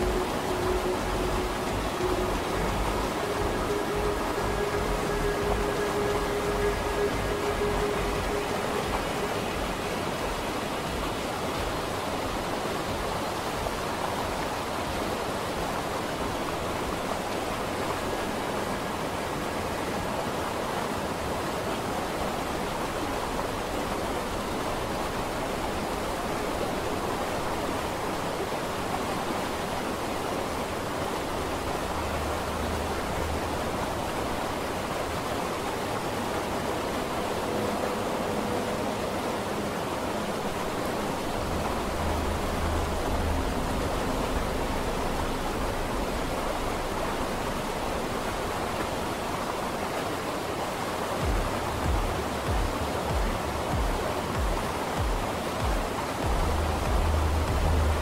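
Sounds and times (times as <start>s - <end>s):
faint held tone: 0.0s - 10.3s
steady ambient hiss: 0.0s - 58.0s.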